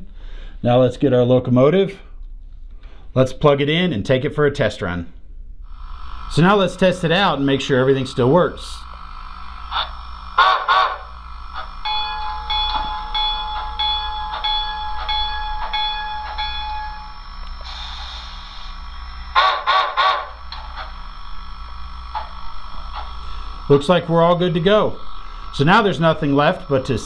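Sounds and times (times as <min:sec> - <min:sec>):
model train whistle toots: 0:09.7 - 0:11.1, 0:19.3 - 0:20.4
bell ringing: 0:11.8 - 0:17.3
steam hiss: 0:17.6 - 0:21.0.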